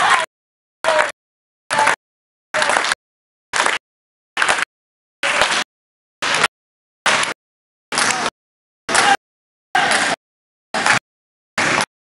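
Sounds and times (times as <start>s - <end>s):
basketball game gym noise: 0.0s - 2.0s, 2.6s - 3.0s, 4.4s - 6.5s, 7.1s - 9.2s, 9.8s - 10.2s, 10.8s - 11.9s.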